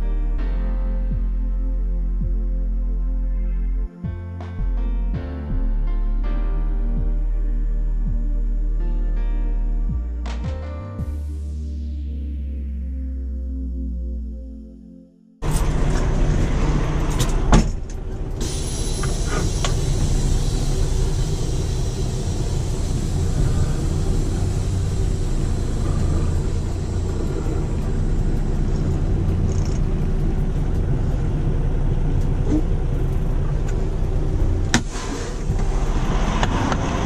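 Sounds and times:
diesel truck engine running: 15.4 - 37.0.

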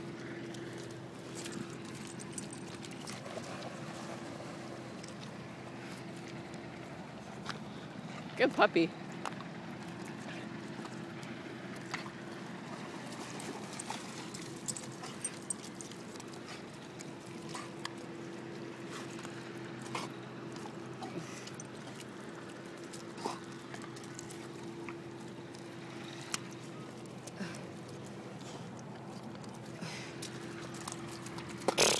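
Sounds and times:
steady low hum: 0.0 - 31.9
water sloshing and dripping: 11.9 - 31.8.

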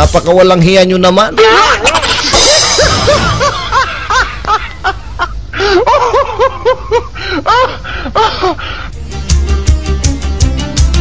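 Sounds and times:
high-pitched laughter: 1.4 - 8.6
music with steady beat: 8.9 - 11.0.

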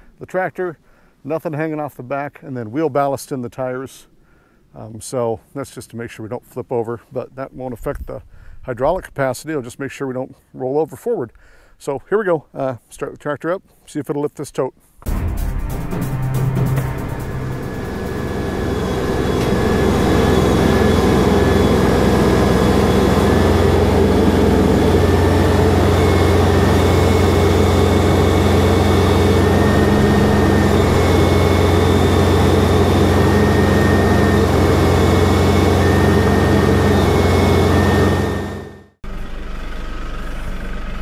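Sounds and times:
tractor diesel engine running: 15.8 - 41.0.

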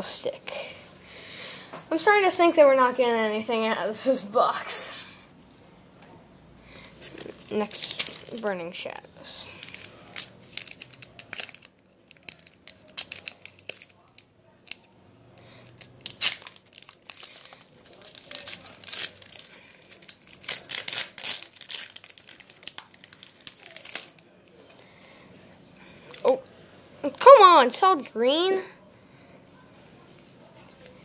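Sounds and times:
foil wrapper tearing and crinkling: 6.9 - 8.5, 9.5 - 14.9, 15.7 - 24.2.

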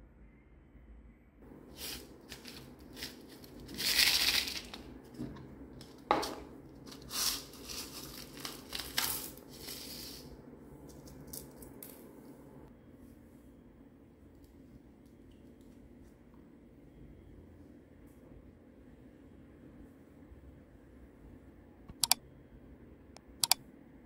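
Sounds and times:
rhinestones rattling and pouring: 1.7 - 5.0, 6.8 - 10.3
sharp click: 21.9 - 22.2, 23.4 - 23.6.

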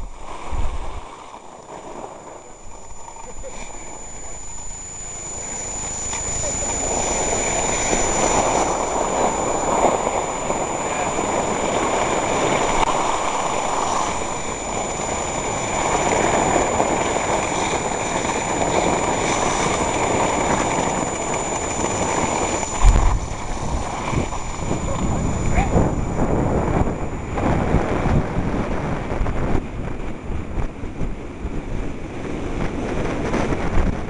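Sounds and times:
thin high whine: 0.0 - 34.0
wind: 0.0 - 34.0
skis sliding on snow: 0.1 - 27.8
low bump: 22.8 - 24.6.

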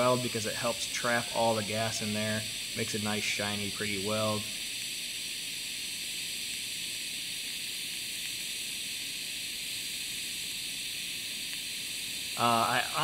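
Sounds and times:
welding arc hissing: 0.0 - 13.0.

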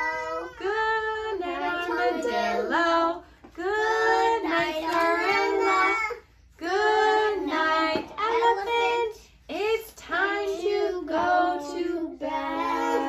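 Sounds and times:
children singing: 0.0 - 9.2, 10.0 - 13.0.

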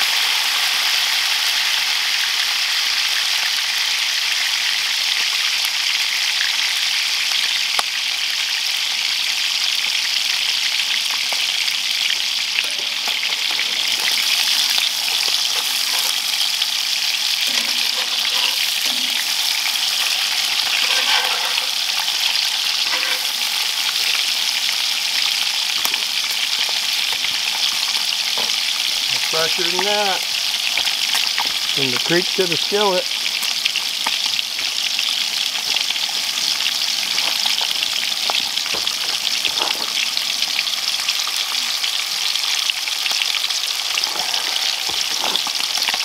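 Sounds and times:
fish sizzling in hot oil: 0.0 - 46.0
metal tongs clicking and scraping: 12.6 - 16.5, 17.3 - 23.4.

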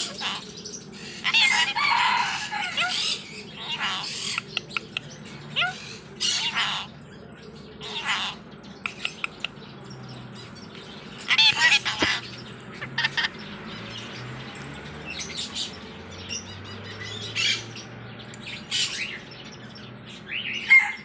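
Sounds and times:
parakeet calling: 0.0 - 7.0, 7.8 - 14.2
sharp clicks: 8.8 - 9.6.

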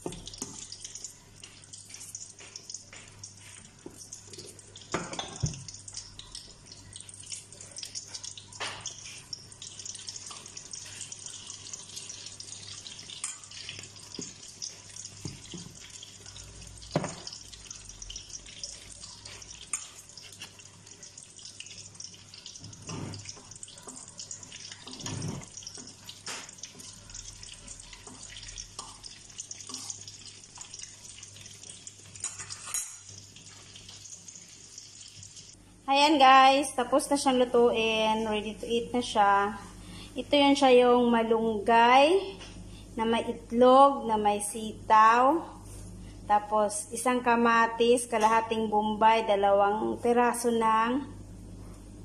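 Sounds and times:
egg frying in oil: 0.0 - 35.6.

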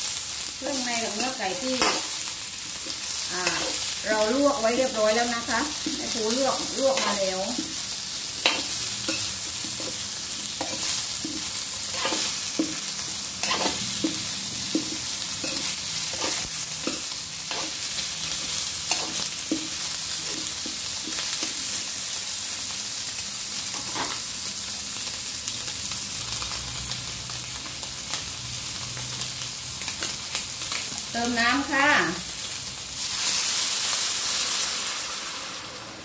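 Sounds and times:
chicken sizzling in hot oil: 0.0 - 36.0
spatula scraping and knocking pan: 8.4 - 10.0, 10.6 - 17.8, 18.9 - 21.6.

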